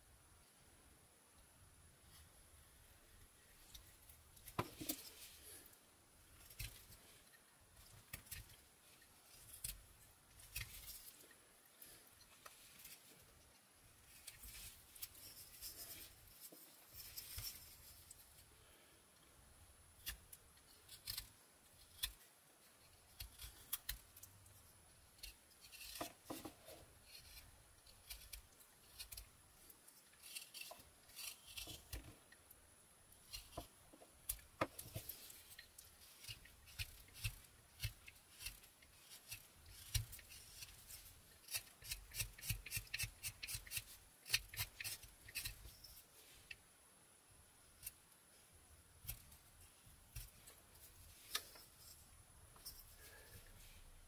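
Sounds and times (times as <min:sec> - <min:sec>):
knife carving wood shavings: 0:03.2 - 0:18.3, 0:19.8 - 0:46.6.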